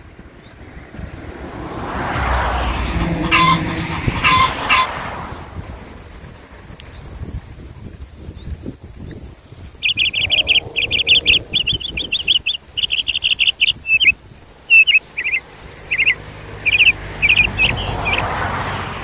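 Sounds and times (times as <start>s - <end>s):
wind on microphone: 0.0s - 19.0s
songbird chirping: 9.1s - 18.4s.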